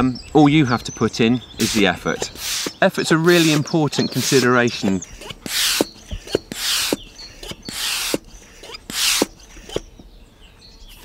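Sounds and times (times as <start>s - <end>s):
hand pump air hissing: 1.6s - 9.9s.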